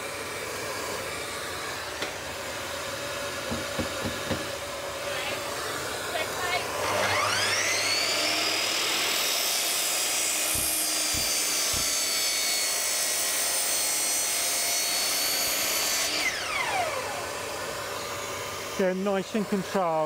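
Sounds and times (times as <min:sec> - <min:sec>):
mitre saw cutting wood: 0:00.0 - 0:20.0
saw blade winding down whine: 0:06.4 - 0:20.0.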